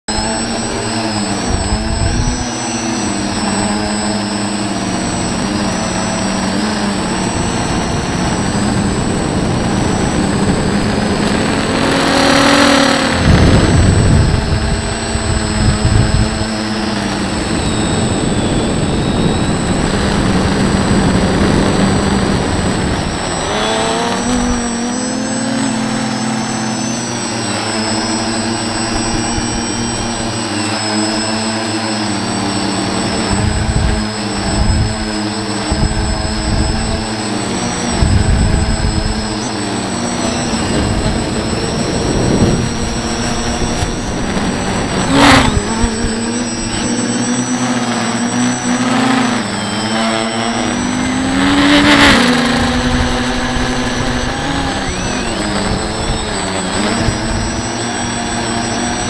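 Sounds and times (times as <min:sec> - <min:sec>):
model aircraft motors whining: 0:00.0 - 0:59.0
air rushing across microphone: 0:40.0 - 0:47.0.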